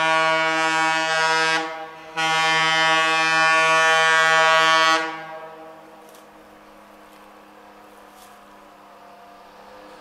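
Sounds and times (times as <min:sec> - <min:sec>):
locomotive air horn blasts: 0:00.0 - 0:06.0.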